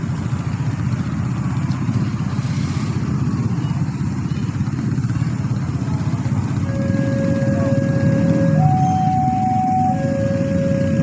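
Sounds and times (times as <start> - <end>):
car engines: 0.0 - 11.0
motorcycle engines: 0.0 - 11.0.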